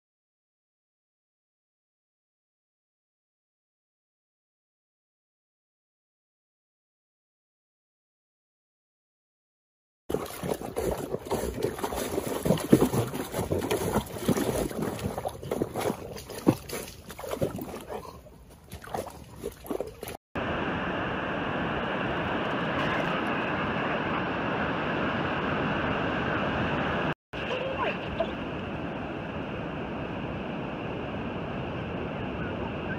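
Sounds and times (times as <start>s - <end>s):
dog splashing in muddy water: 10.1s - 20.2s.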